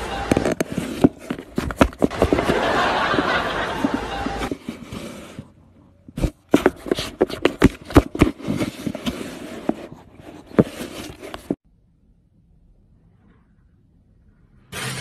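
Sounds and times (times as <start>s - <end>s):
cat licking and rubbing microphone: 0.2s - 11.6s.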